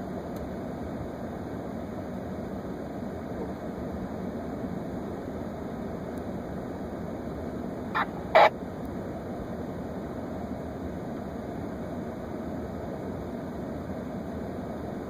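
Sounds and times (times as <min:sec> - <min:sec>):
short sharp blips: 0:08.0 - 0:08.5.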